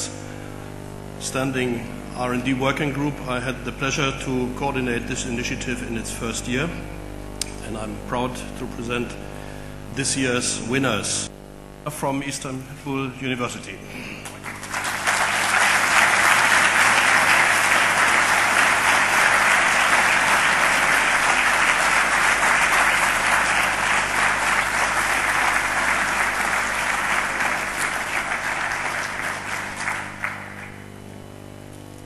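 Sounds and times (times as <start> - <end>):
audience applauding: 14.2 - 31.1.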